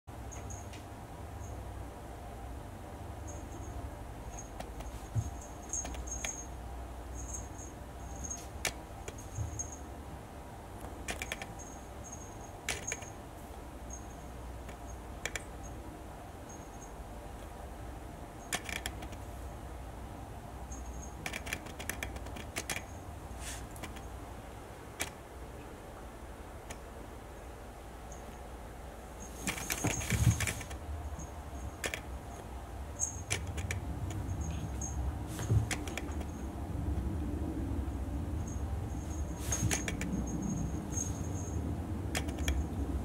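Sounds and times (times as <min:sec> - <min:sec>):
kitten claws clicking on wood floor: 0:10.8 - 0:11.6, 0:21.2 - 0:22.9, 0:35.3 - 0:36.3.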